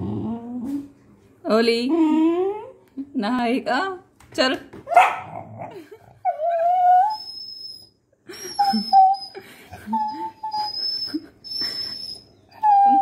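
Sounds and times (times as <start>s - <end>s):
dog grumbling: 0.0s - 0.8s, 5.2s - 6.2s
dog whining: 0.0s - 1.0s, 1.9s - 2.8s, 4.9s - 13.0s.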